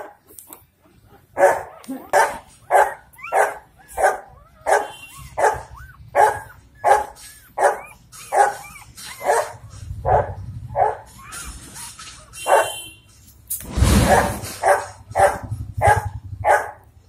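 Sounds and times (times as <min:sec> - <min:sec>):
puppies squealing: 0:00.0 - 0:10.0, 0:10.8 - 0:12.7
dog barking: 0:01.4 - 0:11.1, 0:12.4 - 0:13.0, 0:14.1 - 0:16.8.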